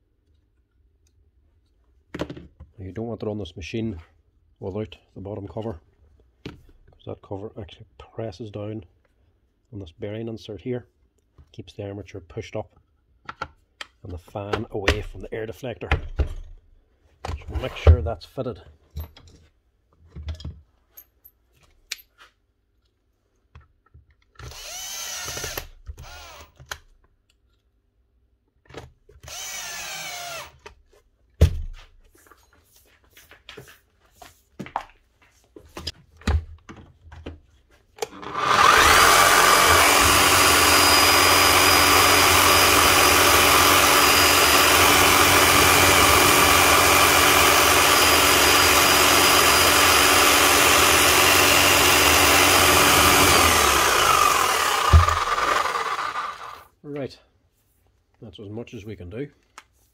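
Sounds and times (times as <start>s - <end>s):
electric hammer motor whining: 29.3s - 30.5s, 38.0s - 56.7s.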